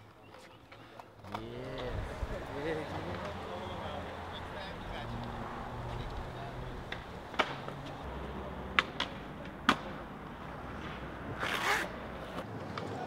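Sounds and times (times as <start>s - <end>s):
skateboard clacks: 6.0s - 8.0s, 8.7s - 10.0s
skateboard scraping: 10.6s - 13.0s.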